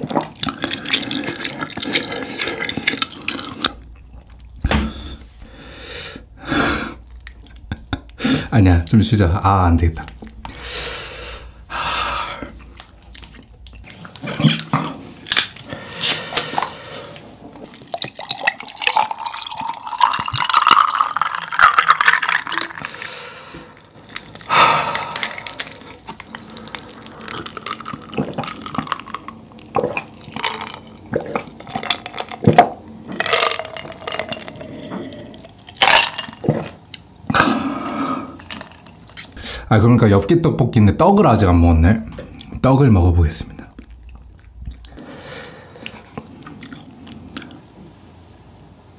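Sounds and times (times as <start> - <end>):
drink sloshing with ice: 0.0 - 3.8, 17.6 - 36.8, 38.3 - 39.4
wet chewing and slurping: 0.0 - 4.6, 12.4 - 39.4, 43.7 - 47.8.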